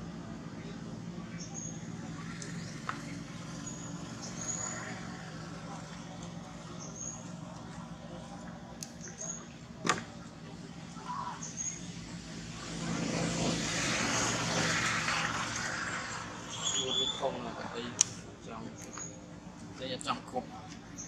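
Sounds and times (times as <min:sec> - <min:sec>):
wash of vehicle noise: 0:11.9 - 0:17.8.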